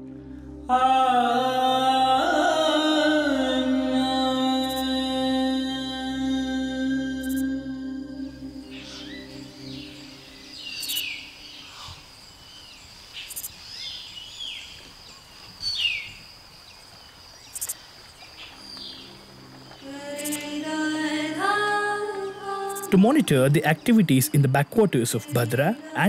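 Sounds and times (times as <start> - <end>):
music: 0.0 - 11.7, 18.5 - 26.0
high-pitched insect drone: 3.4 - 14.6, 15.6 - 26.0.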